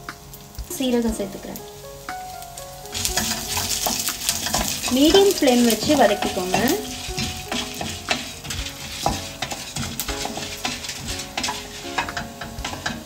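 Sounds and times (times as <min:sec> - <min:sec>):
oil sizzling: 0:00.0 - 0:13.0
wooden spatula scraping pan: 0:03.2 - 0:13.0.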